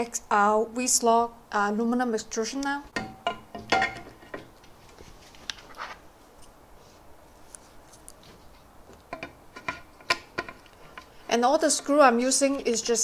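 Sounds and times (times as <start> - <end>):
metal knock: 2.9 - 4.5
small metal clicks: 9.1 - 11.2.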